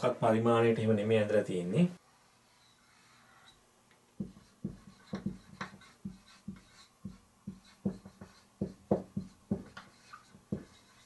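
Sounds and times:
marker pen writing on whiteboard: 0:04.2 - 0:11.0.

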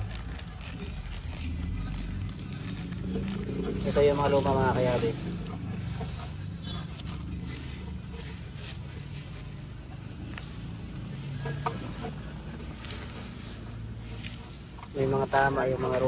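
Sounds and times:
plastic bag crinkling: 0:00.0 - 0:12.0
steady low hum: 0:00.0 - 0:16.0.

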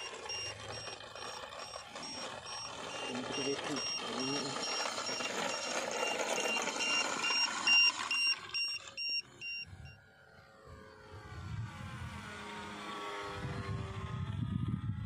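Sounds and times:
short electronic beeps: 0:00.0 - 0:09.9
model airplane motor whine: 0:00.0 - 0:15.0.

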